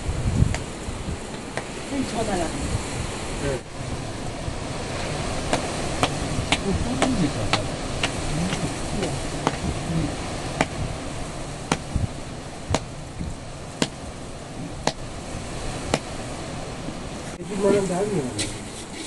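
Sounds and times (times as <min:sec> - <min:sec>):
steady rushing noise: 0:00.0 - 0:19.0
sharp knocks: 0:05.5 - 0:09.8, 0:10.6 - 0:10.9, 0:11.7 - 0:12.1, 0:12.7 - 0:12.9, 0:13.8 - 0:14.0, 0:15.9 - 0:16.1.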